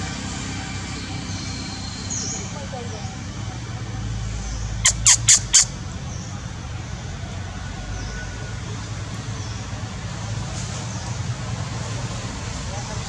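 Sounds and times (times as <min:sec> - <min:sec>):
high-pitched animal calls: 0:04.7 - 0:05.8.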